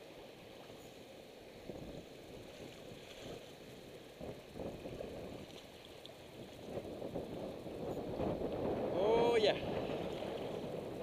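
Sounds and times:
water splashing against kayak hull: 0:02.0 - 0:07.3, 0:08.2 - 0:11.0.

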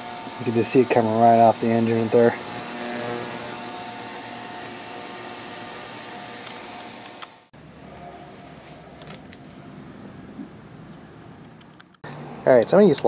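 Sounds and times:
ultrasonic cleaner hiss and buzz: 0:00.0 - 0:07.5.

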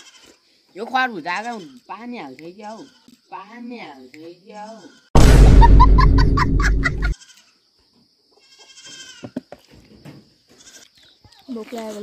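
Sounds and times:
loud goat bleat: 0:00.0 - 0:00.3, 0:04.6 - 0:05.1, 0:08.4 - 0:09.4, 0:10.6 - 0:10.9.

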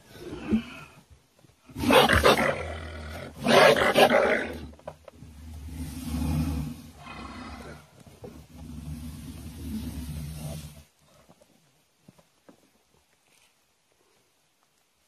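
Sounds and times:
low animal growl: 0:01.7 - 0:11.2
large animal roaring: 0:01.8 - 0:07.9.

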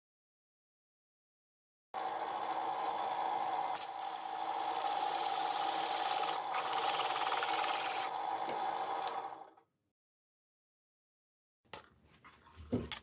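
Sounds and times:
drill press motor hum: 0:02.0 - 0:09.6
cutter rasping through acrylic: 0:03.8 - 0:09.2.

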